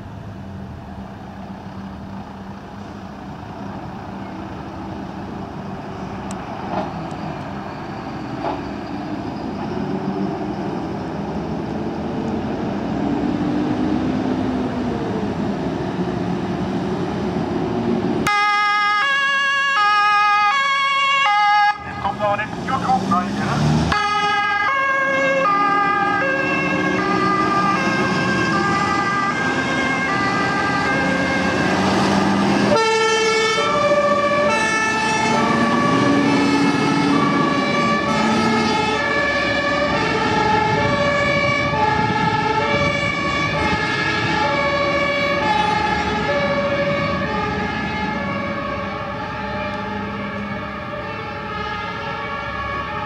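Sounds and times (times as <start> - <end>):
diesel truck engines running: 0.0 - 53.0
two-tone sirens: 3.5 - 53.0.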